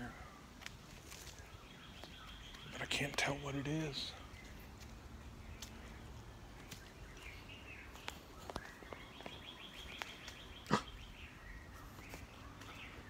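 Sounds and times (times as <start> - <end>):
footsteps through undergrowth: 0.4 - 10.6, 11.7 - 13.0
twigs snapping: 0.6 - 2.7, 6.6 - 7.0.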